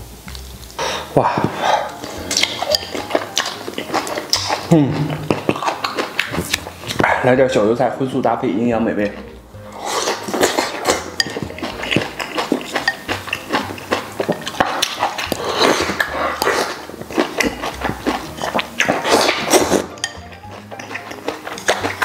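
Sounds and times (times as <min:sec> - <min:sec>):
crunchy chewing: 0:01.4 - 0:07.1, 0:09.1 - 0:22.0
noodle slurping: 0:09.7 - 0:22.0.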